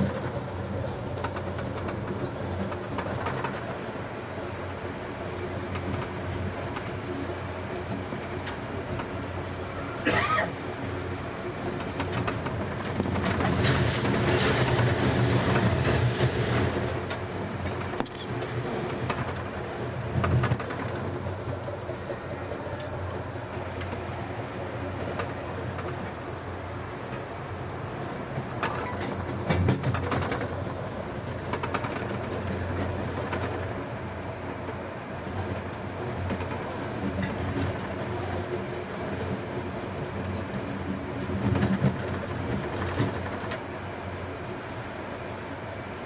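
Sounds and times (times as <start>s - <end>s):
train rumbling on track: 0.0s - 46.0s
wheels clicking on rails: 0.0s - 46.0s
wheel clicks and clacks: 11.8s - 21.7s, 28.5s - 30.8s, 31.4s - 33.7s.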